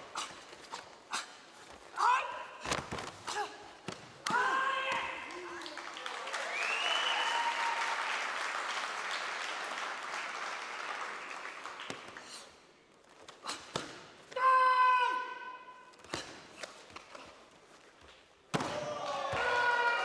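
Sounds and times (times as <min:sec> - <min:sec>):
crowd applauding and cheering: 0:05.3 - 0:12.0, 0:18.8 - 0:20.0.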